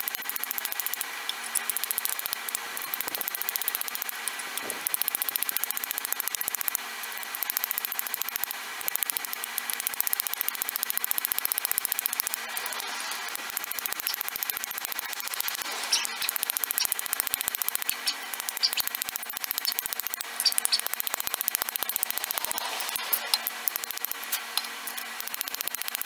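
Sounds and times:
small hammer tapping metal pin: 0:16.2 - 0:26.0.

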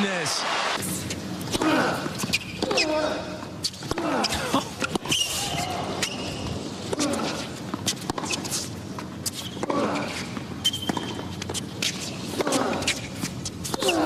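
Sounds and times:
racquets striking tennis ball: 0:06.9 - 0:14.0.

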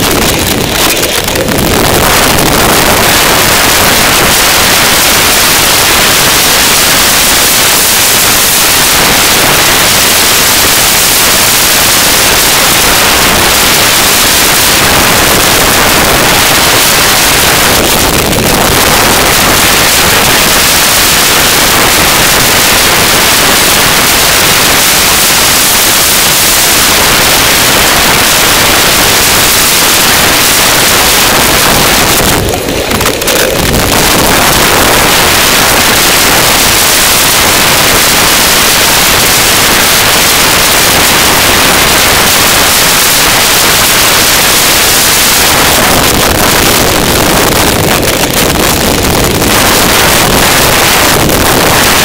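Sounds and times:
wind noise on microphone: 0:00.0 - 0:52.0.

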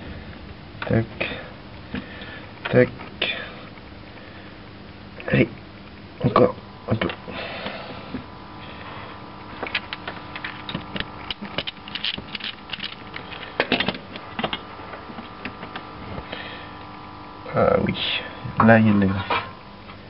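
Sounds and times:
screwdriver and metal parts clicking: 0:09.7 - 0:13.5.

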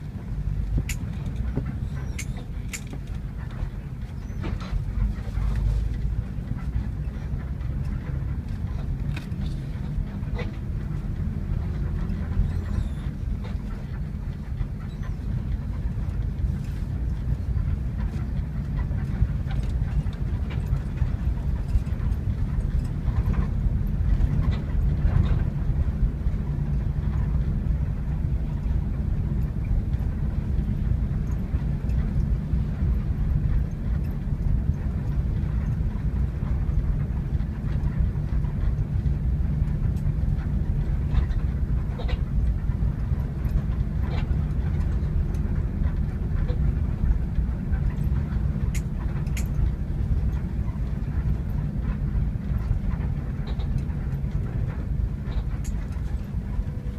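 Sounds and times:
bus engine drone and road rumble: 0:00.0 - 0:56.9
light rattles and clicks: 0:00.0 - 0:56.9.

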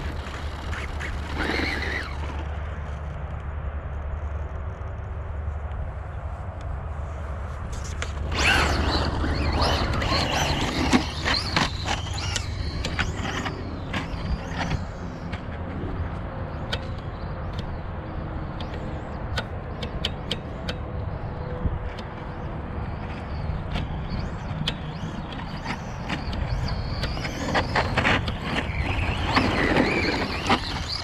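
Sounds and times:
radio-control truck motor whine: 0:00.0 - 0:04.9, 0:07.8 - 0:31.0
tyre noise on dirt: 0:07.1 - 0:15.6, 0:25.7 - 0:31.0.

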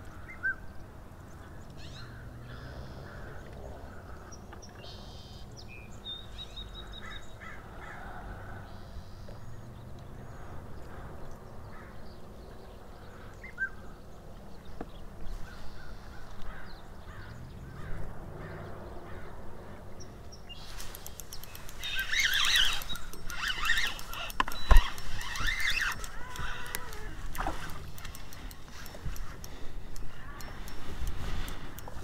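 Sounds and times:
birds calling: 0:00.0 - 0:32.0
crows cawing: 0:02.0 - 0:04.3, 0:06.9 - 0:08.5, 0:15.4 - 0:19.8, 0:21.8 - 0:28.1
fishing reel clicking and scraping: 0:20.6 - 0:32.0.

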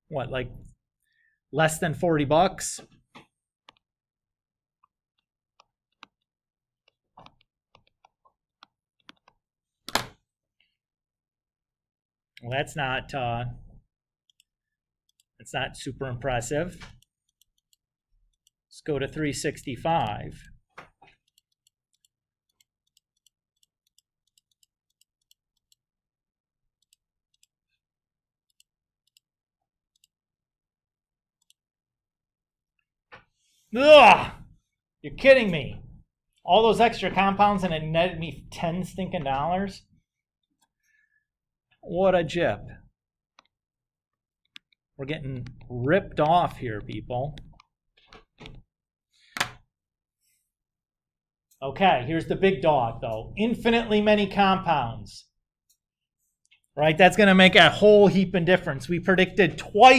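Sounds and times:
computer mouse clicks: 0:21.2 - 0:25.8, 0:29.9 - 0:30.2.

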